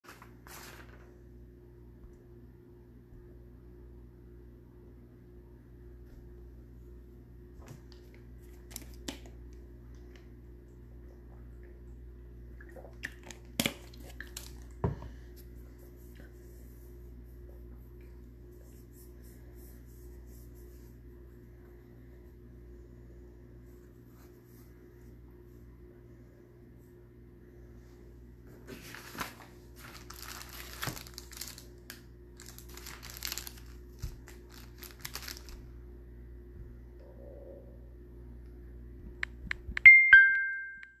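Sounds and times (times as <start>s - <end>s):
low room hum: 0.0s - 41.0s
packaging wrap crinkling: 0.1s - 1.1s, 28.7s - 35.7s.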